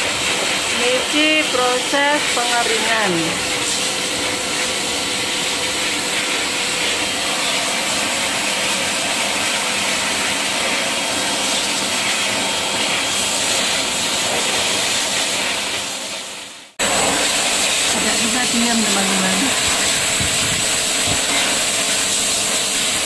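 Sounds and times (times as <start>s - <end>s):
grooming blower rush of air: 16.8s - 23.0s.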